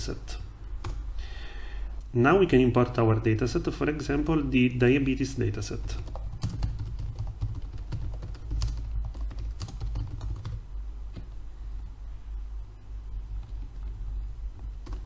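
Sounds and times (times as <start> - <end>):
low steady hum: 0.0 - 15.0
keyboard typing: 5.7 - 10.6, 14.6 - 15.0.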